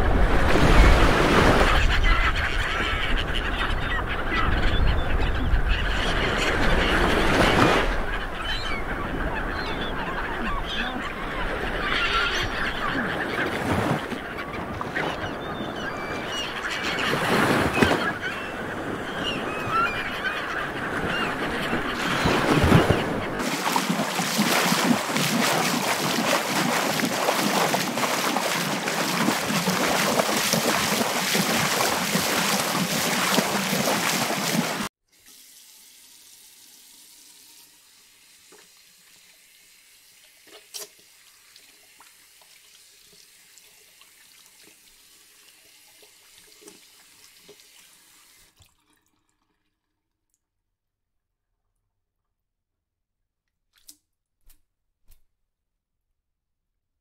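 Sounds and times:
sea waves breaking: 0:00.0 - 0:34.9.

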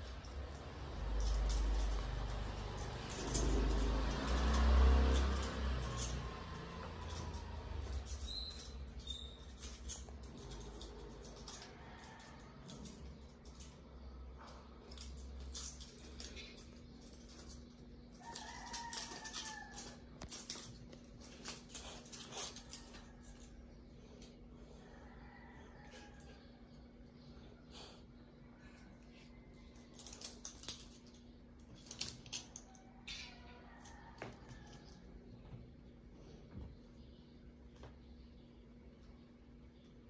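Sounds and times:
kitten pawing toy rustling clicks: 0:00.0 - 0:23.6, 0:29.6 - 0:35.1.

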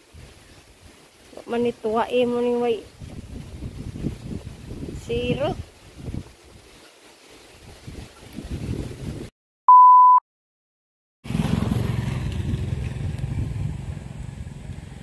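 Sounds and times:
electronic beep: 0:09.7 - 0:10.2.

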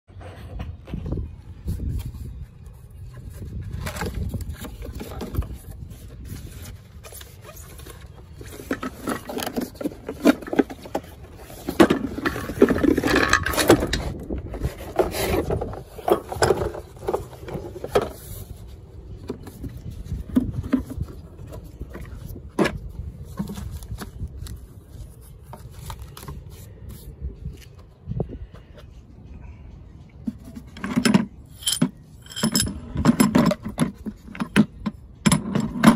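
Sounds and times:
plastic case scraping and rustling: 0:01.9 - 0:27.2.

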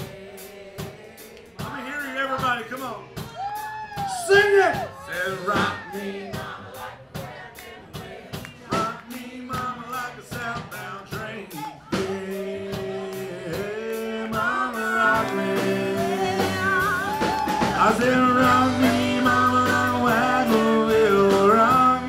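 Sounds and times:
crowd singing along: 0:00.0 - 0:03.4, 0:04.3 - 0:22.0
live country band: 0:00.0 - 0:22.0
crowd clapping in time: 0:07.5 - 0:09.3, 0:15.1 - 0:15.6, 0:16.2 - 0:18.4.

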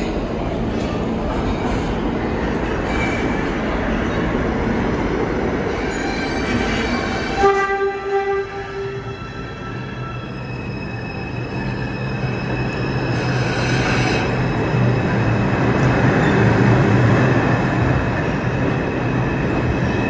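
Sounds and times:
subway train wheels rumbling: 0:00.0 - 0:20.0
train horn: 0:07.3 - 0:09.2.

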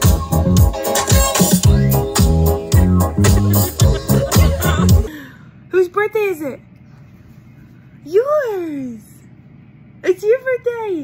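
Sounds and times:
music with heavy bass: 0:00.0 - 0:05.1.

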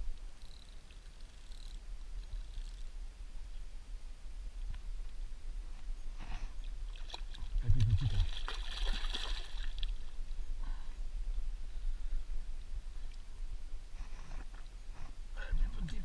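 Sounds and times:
fish splashing in water: 0:07.0 - 0:10.0.

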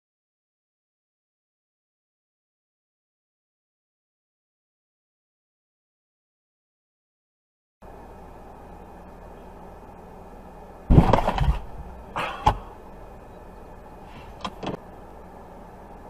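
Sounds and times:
car cabin hum: 0:07.8 - 0:16.0
car collision crunch: 0:10.9 - 0:12.7.

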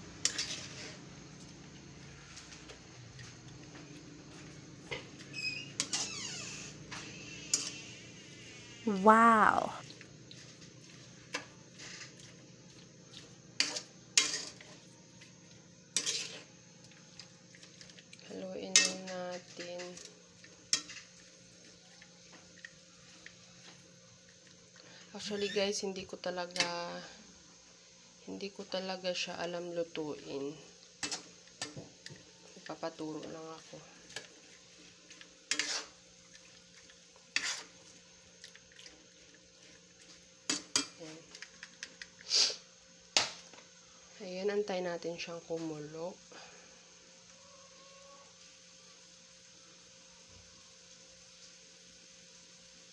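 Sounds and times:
spoon scraping a metal pan: 0:00.2 - 0:01.0, 0:05.6 - 0:08.0, 0:13.6 - 0:14.8, 0:15.9 - 0:16.5, 0:18.7 - 0:20.1, 0:35.5 - 0:36.0, 0:37.3 - 0:37.8
metal tongs clinking on pan: 0:18.7 - 0:20.1.

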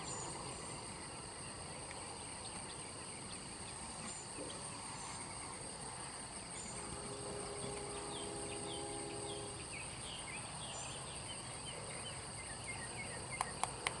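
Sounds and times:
insects chirping drone: 0:00.0 - 0:14.0
sharp clicks: 0:13.4 - 0:14.0.

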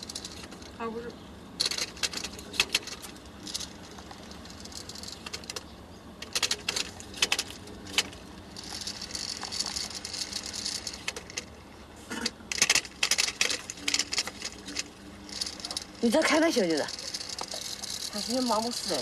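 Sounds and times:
low hum: 0:00.0 - 0:19.0
sharp clicks and rattles: 0:00.0 - 0:19.0.

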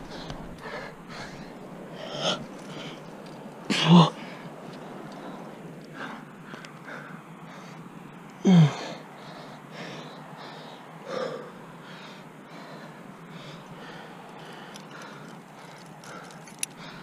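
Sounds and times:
person grunting: 0:08.4 - 0:08.8.

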